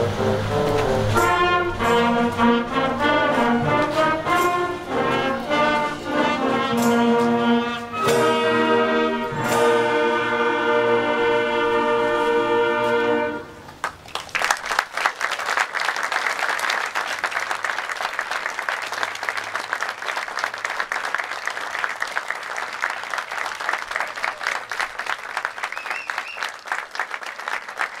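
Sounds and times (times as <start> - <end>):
concert band held chord: 0.0 - 13.6
audience applause: 13.7 - 28.0.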